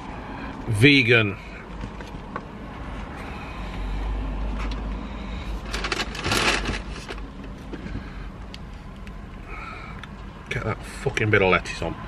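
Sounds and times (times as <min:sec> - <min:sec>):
cardboard packaging crinkling: 0:05.6 - 0:07.3.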